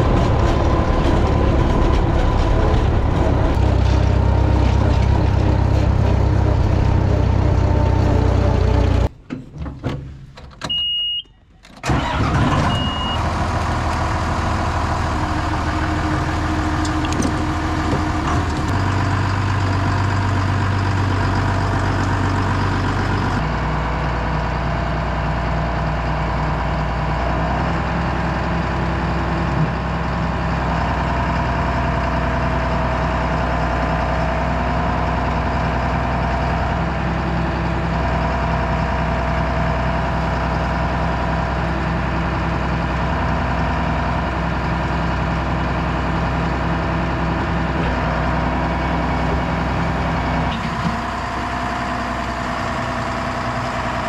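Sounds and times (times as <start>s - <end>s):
diesel tractor engine running: 0.0s - 54.0s
short beep: 10.7s - 11.4s, 12.6s - 13.2s.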